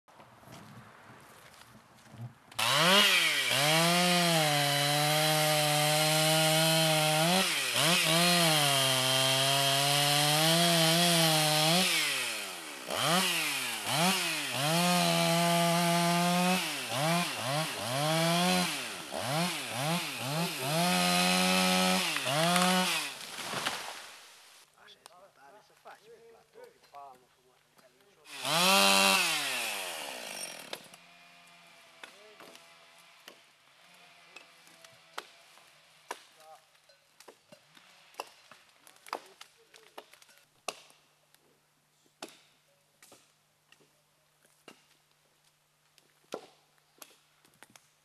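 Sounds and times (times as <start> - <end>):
chainsaw cutting wood: 2.5 - 24.3, 28.3 - 36.4, 46.2 - 47.8.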